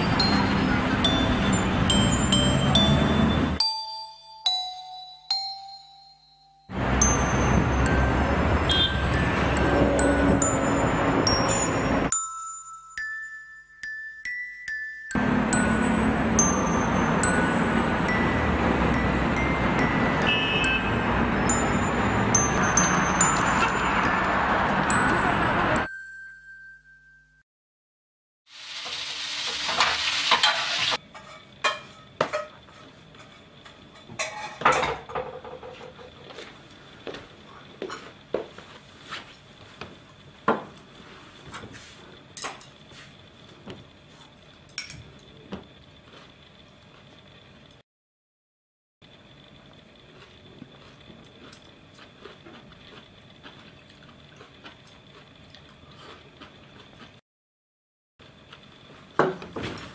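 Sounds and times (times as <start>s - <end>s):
food sizzling in a frying pan: 28.5s - 31.0s
dishes clinking on a table: 30.3s - 36.3s, 44.7s - 45.6s.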